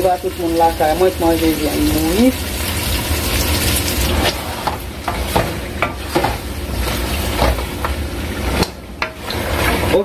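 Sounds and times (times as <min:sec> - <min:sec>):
chicken sizzling in oil: 0:00.0 - 0:10.0
wooden spoon scraping a pot: 0:04.0 - 0:10.0.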